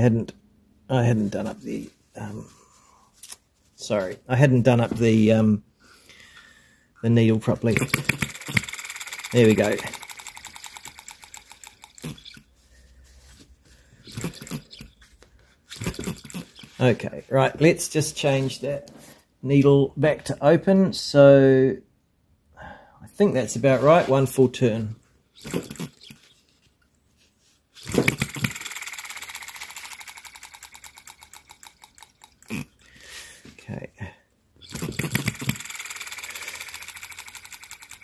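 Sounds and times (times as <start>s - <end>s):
small engine running: 7.7s - 12.4s, 14.1s - 14.8s, 15.7s - 16.8s, 25.4s - 26.2s, 27.8s - 32.6s, 34.6s - 38.0s
flywheels clicking: 7.7s - 12.5s, 14.1s - 15.0s, 15.7s - 16.8s, 25.4s - 26.4s, 27.8s - 32.7s, 34.6s - 38.0s.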